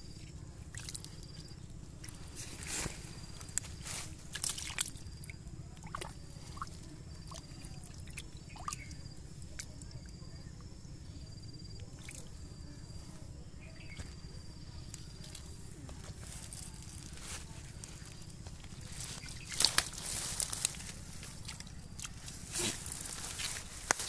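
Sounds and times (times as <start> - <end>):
water drips and splashes: 0.7 - 1.4, 4.3 - 10.0, 19.5 - 22.4
hands groping through muddy water: 3.4 - 9.8.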